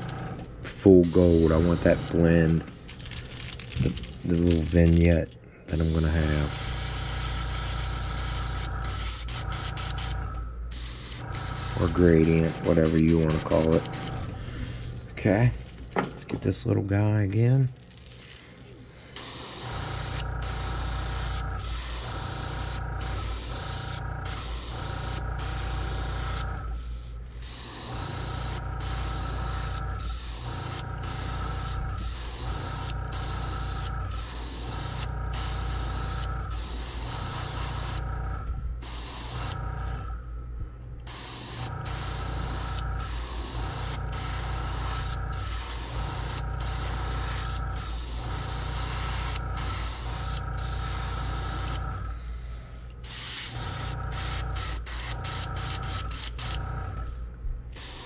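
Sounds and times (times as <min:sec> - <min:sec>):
steady low hum: 0:00.0 - 0:58.0
airbrush spraying hiss: 0:10.7 - 0:13.8, 0:19.2 - 0:38.0, 0:38.8 - 0:39.6, 0:41.1 - 0:51.8, 0:57.8 - 0:58.0.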